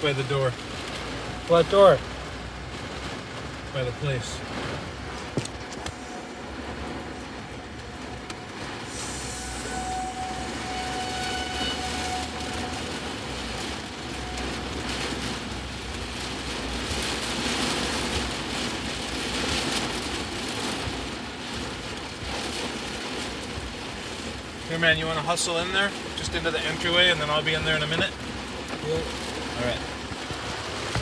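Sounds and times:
rain hissing: 0.0 - 31.0
wet tyres hissing: 8.6 - 31.0
car cabin rumble: 19.4 - 31.0.

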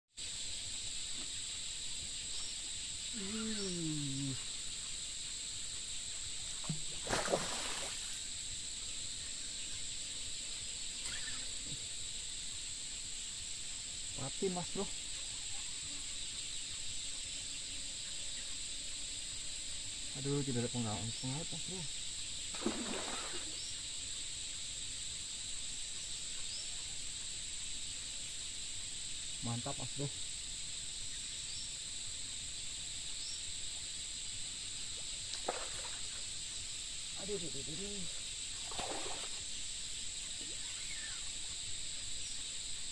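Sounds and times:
high insect buzz: 0.1 - 42.9
fish splashing at water surface: 6.6 - 8.2, 22.5 - 23.6, 35.3 - 36.2, 38.6 - 39.4.

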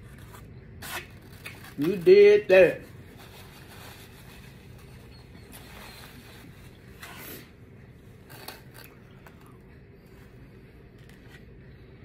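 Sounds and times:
paper napkin rubbing: 0.1 - 7.5.

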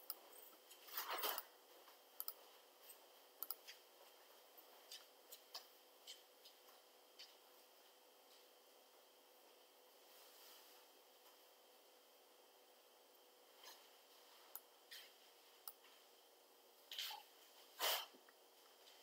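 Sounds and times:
computer mouse clicks: 2.2 - 2.4, 3.4 - 3.8.

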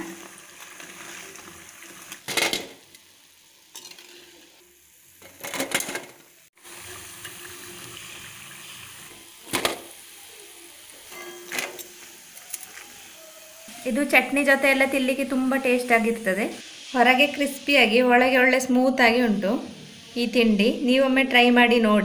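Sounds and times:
oil sizzling: 0.0 - 22.0
spatula scraping and clinking: 3.7 - 4.2, 11.1 - 12.8.

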